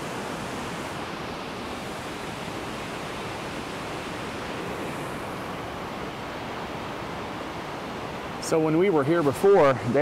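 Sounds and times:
waterfall rushing: 0:00.0 - 0:10.0.

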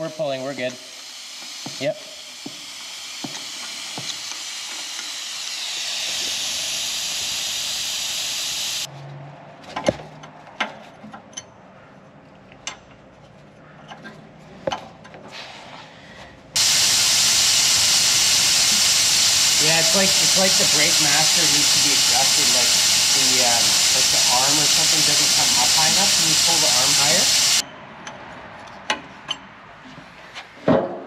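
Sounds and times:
vacuum brake bleeder hissing: 0:00.7 - 0:08.9, 0:16.6 - 0:27.6.

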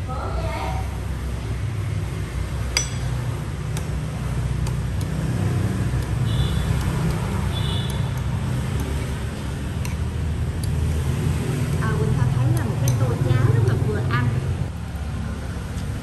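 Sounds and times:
road traffic rumble: 0:00.0 - 0:16.0
metal spoon clinking ceramic bowl: 0:02.8 - 0:03.2.

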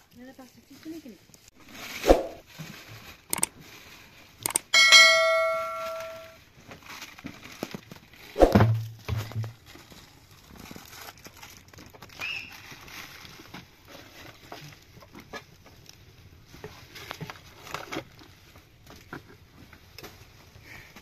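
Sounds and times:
metal object ringing: 0:04.5 - 0:06.4
plastic bag crinkling: 0:06.5 - 0:15.0.

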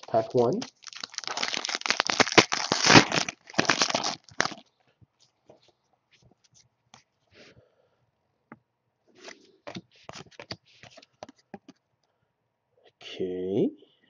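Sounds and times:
plastic wrapper crinkling and tearing: 0:00.0 - 0:04.7
cards tapping and rustling: 0:09.2 - 0:11.8.

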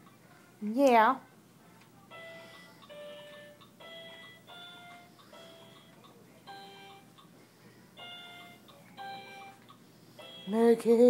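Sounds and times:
electronic toy beeping tune: 0:02.1 - 0:05.9, 0:06.5 - 0:07.1.

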